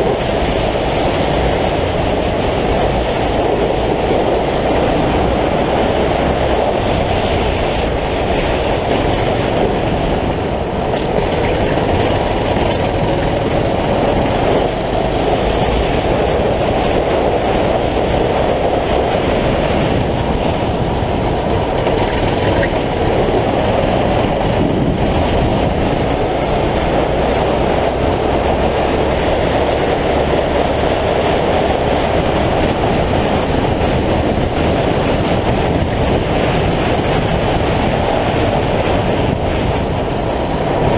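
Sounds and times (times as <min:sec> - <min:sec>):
kart engine drone: 0:00.0 - 0:40.9.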